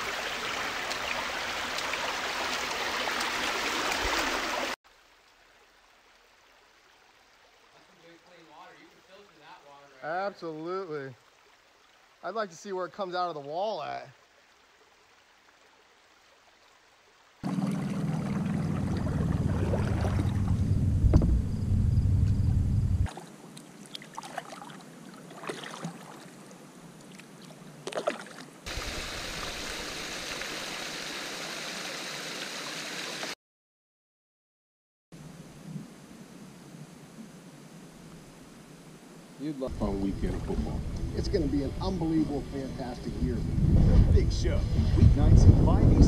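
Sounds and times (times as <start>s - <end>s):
rushing water from cascade: 0.0s - 6.3s, 7.2s - 14.0s, 28.6s - 33.4s
paddle splashes: 17.4s - 20.6s, 23.1s - 30.3s
loud low rumble: 17.5s - 23.1s, 42.5s - 46.0s.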